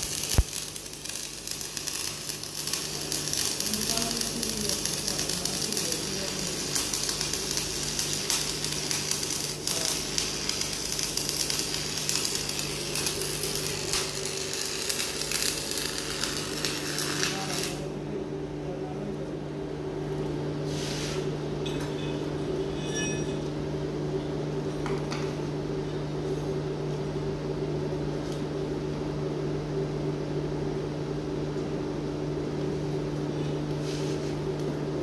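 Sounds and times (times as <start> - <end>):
welding arc crackling: 0.0 - 17.9
steady low hum: 0.0 - 35.0.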